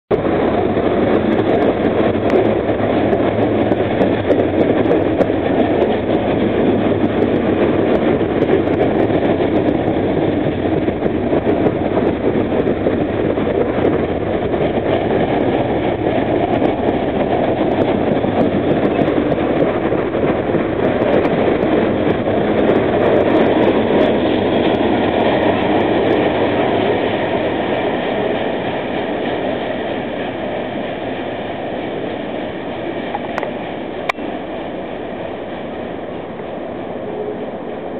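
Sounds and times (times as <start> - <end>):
train wheels rumbling on rails: 0.0 - 37.9
sharp clicks from wheels: 32.4 - 34.3.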